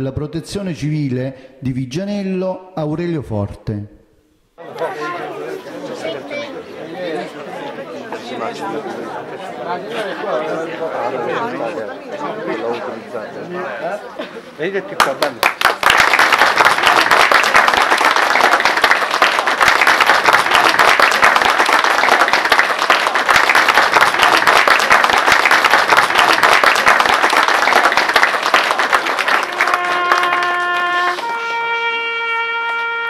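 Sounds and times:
crowd applauding: 14.9 - 31.6
trumpet held note: 29.3 - 33.0.

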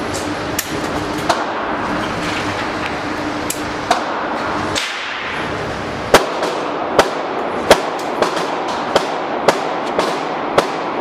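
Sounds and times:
steady background noise: 0.0 - 11.0
gunshots: 6.1 - 11.0.

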